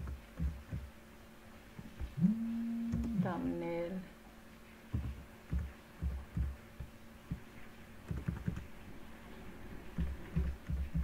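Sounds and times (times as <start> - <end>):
typing on computer keyboard: 8.1 - 8.7.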